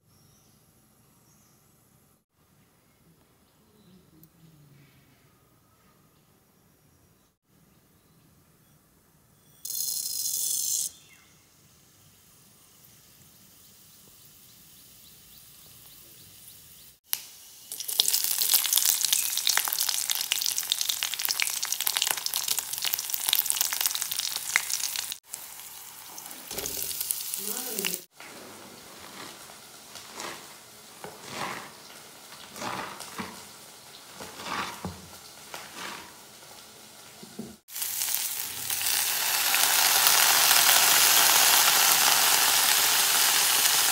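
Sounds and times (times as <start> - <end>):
oil sizzling in a wok: 11.7 - 43.9.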